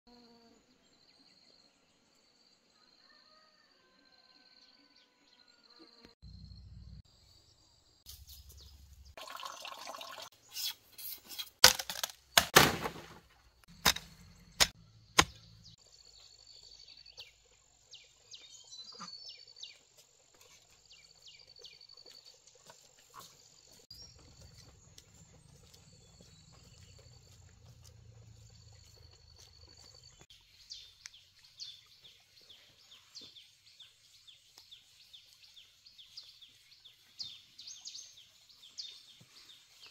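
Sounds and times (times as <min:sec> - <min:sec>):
sharp knocks and clicks: 0:13.8 - 0:15.4
birds chirping: 0:20.8 - 0:39.9
insects chirping: 0:24.0 - 0:30.3.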